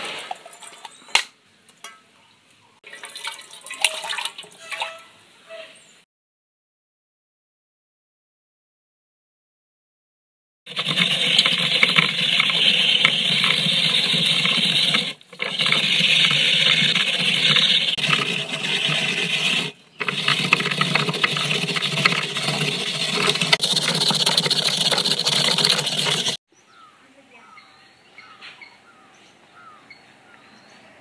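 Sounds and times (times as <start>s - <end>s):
coconut grating rasping scrape: 10.7s - 26.4s.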